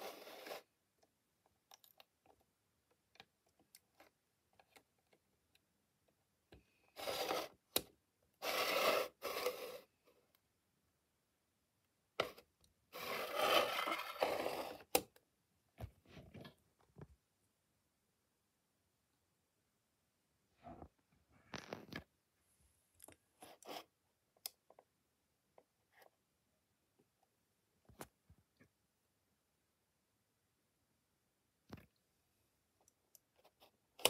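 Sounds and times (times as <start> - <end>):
scraping and rubbing of model: 0.0 - 0.8, 6.9 - 7.8, 8.4 - 10.1, 12.2 - 15.0, 23.3 - 24.0.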